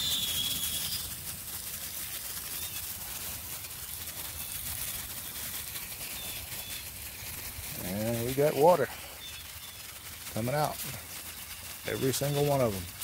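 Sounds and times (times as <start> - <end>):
thin whistle: 0.0 - 1.2
water hissing through hose: 0.0 - 13.0.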